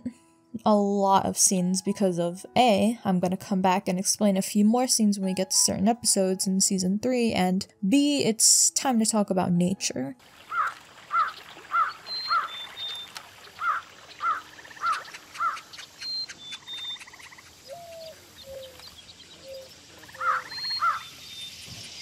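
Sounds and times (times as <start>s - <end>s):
crows cawing: 10.3s - 12.6s, 13.5s - 15.9s, 19.6s - 21.1s
high bird whistles: 10.5s - 22.0s.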